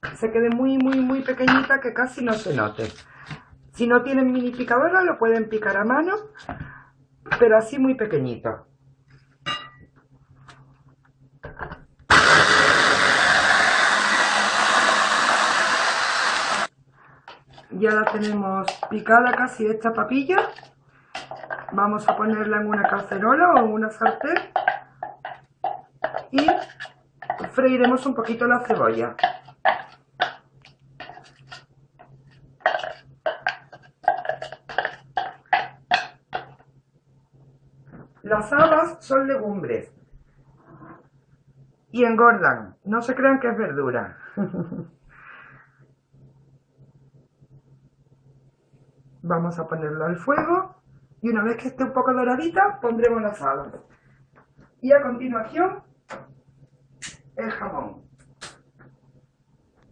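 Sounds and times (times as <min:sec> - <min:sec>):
electric chopper whirring: 0:12.1 - 0:16.7
spoon scraping and knocking: 0:17.3 - 0:19.4, 0:20.4 - 0:36.6.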